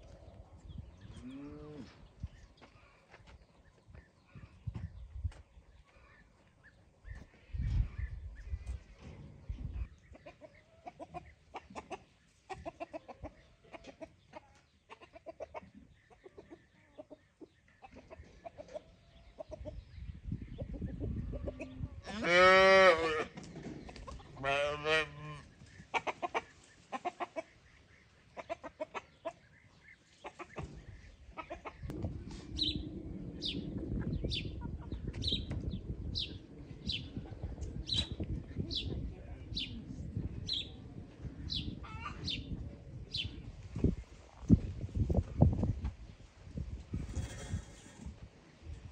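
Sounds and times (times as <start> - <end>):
chickens clucking: 0.0 - 22.2, 23.1 - 48.9
low rumble: 31.9 - 43.0.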